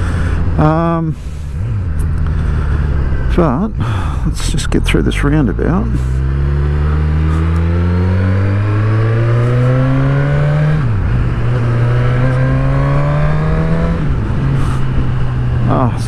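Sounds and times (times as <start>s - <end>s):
motorcycle engine accelerating hard: 0.0s - 16.0s.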